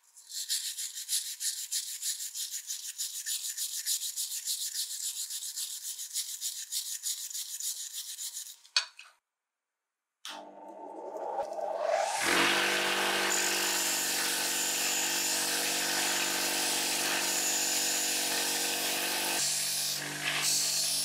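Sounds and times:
wire brush scrubbing metal blade: 0.0 - 8.7.

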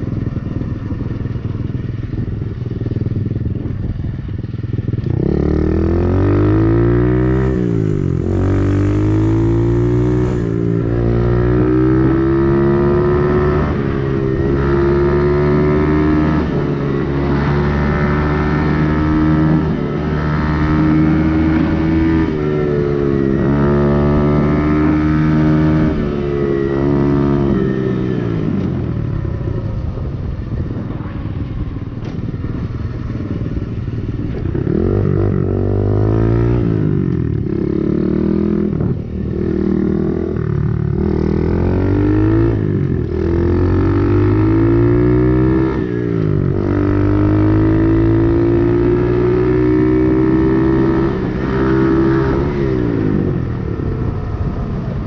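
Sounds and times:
dirt bike engine revving: 34.6 - 53.5.

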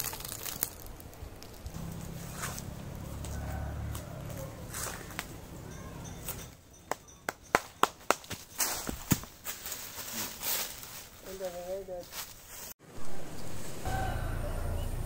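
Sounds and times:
sharp snaps and knocks: 0.0 - 1.8, 6.3 - 9.3
soft rustling: 8.6 - 12.8.

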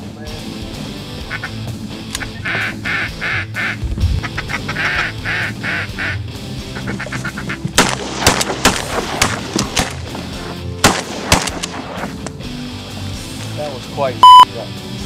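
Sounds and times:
duck call quacking: 1.2 - 1.6, 2.2 - 7.6
shotgun blasts: 7.8 - 10.0, 10.8 - 12.1.

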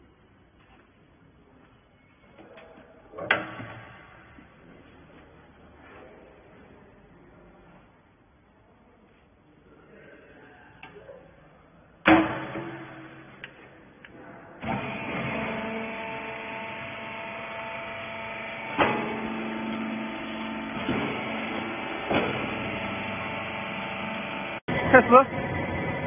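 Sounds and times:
baler electric motor humming: 14.6 - 26.0.

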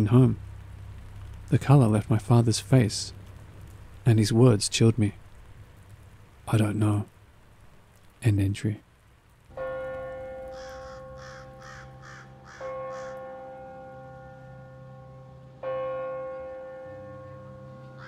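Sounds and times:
crow cawing: 10.5 - 13.4.

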